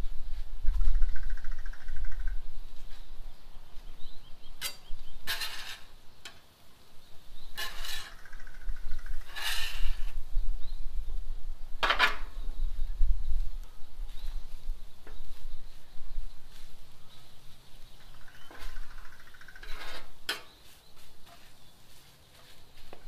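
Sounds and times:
metal spatulas scraping griddle: 4.6 - 6.0, 7.6 - 8.3, 9.2 - 10.1, 19.6 - 20.6.

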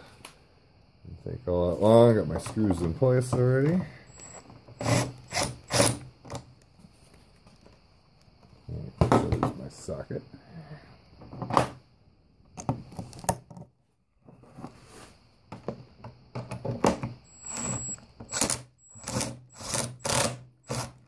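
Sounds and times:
impact driver driving screws: 4.1 - 6.0, 17.3 - 21.0.

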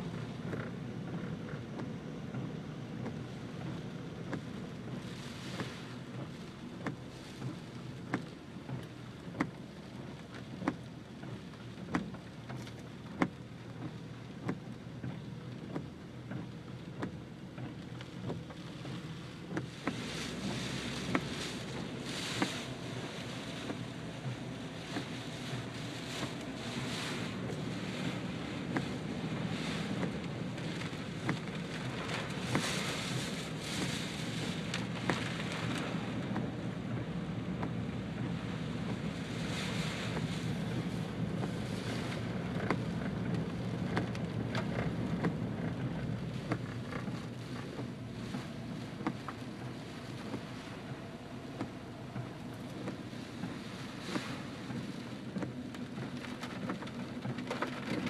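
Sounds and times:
car driving on wet road: 0.0 - 58.0
rain pattering on car: 0.0 - 58.0.

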